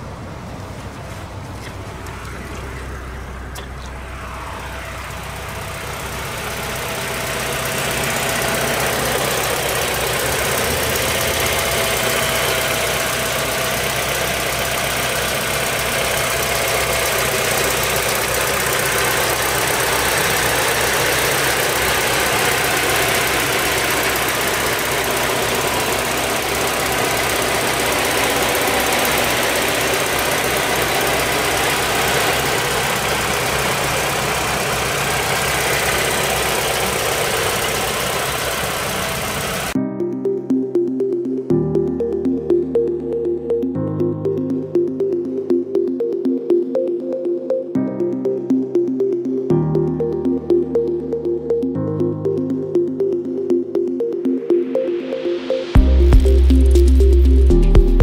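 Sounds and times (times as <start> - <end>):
car engine idling: 0.0 - 39.8, 55.8 - 58.0.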